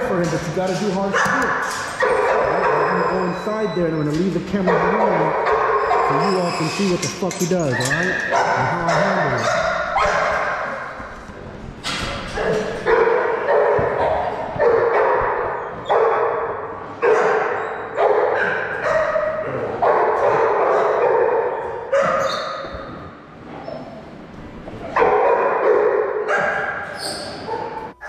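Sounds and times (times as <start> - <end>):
dog barking with echo: 1.0 - 11.1, 12.3 - 22.7, 24.9 - 28.0.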